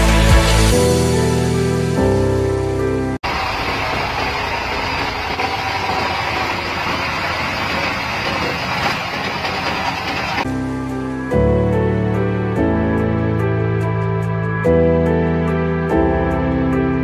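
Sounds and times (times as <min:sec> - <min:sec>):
background music: 0:00.0 - 0:03.2, 0:10.4 - 0:17.0.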